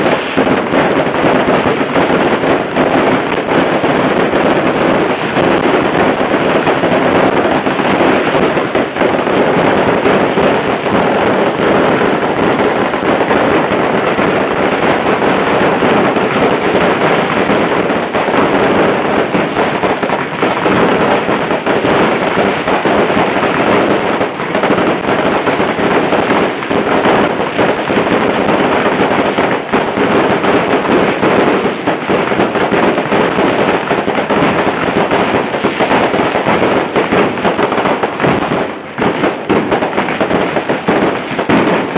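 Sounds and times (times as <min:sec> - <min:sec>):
firecrackers crackling rapidly: 0:00.0 - 0:41.9.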